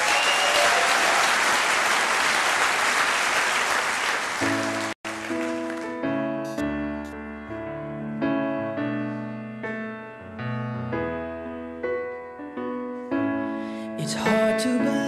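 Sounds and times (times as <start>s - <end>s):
audience applauding: 0.0s - 6.0s
piano tune: 4.0s - 15.0s.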